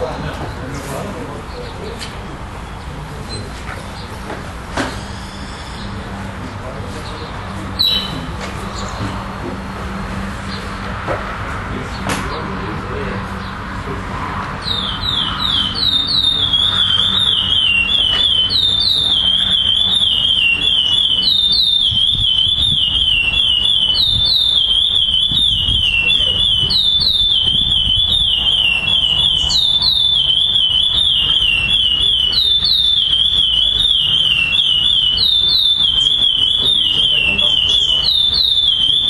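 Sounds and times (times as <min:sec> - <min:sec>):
finch singing whistled phrases: 0:07.8 - 0:08.2, 0:14.6 - 0:39.0.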